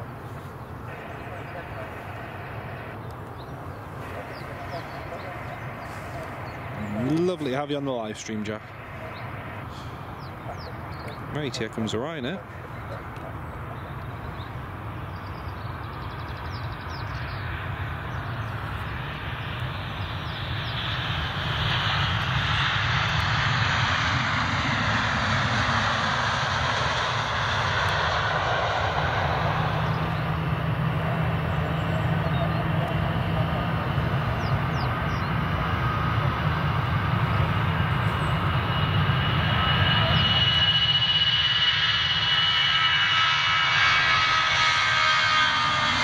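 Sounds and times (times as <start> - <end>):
airliner engines passing: 0.0 - 46.0
sweeping whoosh: 37.8 - 46.0.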